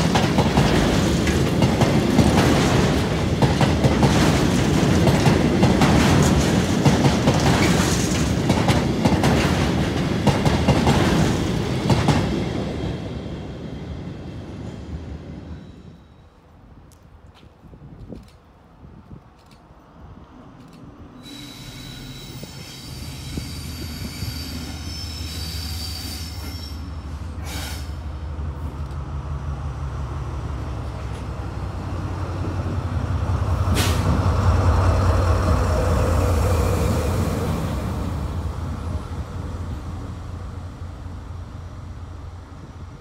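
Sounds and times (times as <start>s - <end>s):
diesel locomotive engine drone: 0.0s - 43.0s
high wheel squeal: 21.2s - 27.9s.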